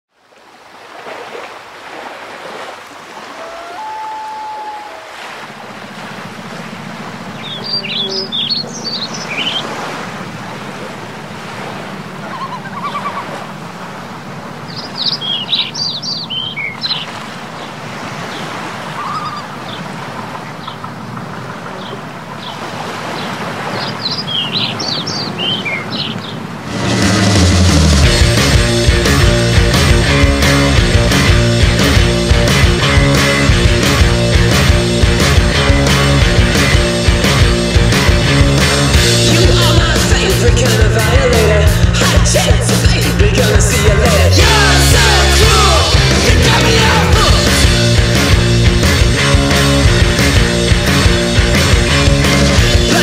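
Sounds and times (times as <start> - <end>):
low hum: 4.1 - 14.7, 26.6 - 53.0
songbird chirping: 6.5 - 9.8, 12.2 - 13.5, 14.4 - 26.5
steady rushing noise: 26.2 - 53.0.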